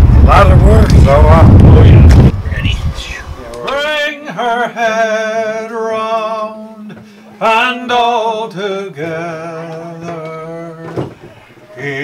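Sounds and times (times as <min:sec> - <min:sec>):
voices singing sea shanty: 0:03.3 - 0:12.0.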